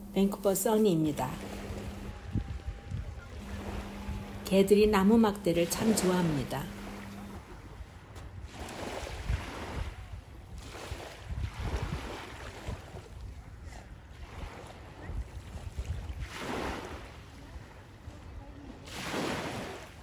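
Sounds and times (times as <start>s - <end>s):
steady outdoor hiss: 0.0s - 10.6s
wind buffeting microphone: 0.9s - 16.9s.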